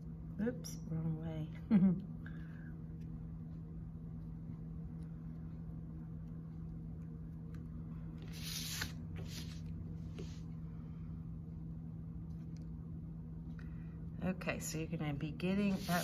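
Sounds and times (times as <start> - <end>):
low hum: 0.0 - 16.0
paper plate scraping on cloth: 15.6 - 16.0.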